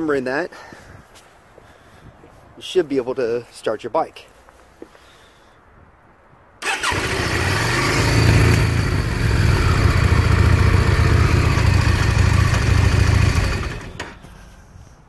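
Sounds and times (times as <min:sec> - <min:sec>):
motorcycle engine starting and idling: 0:06.6 - 0:14.6.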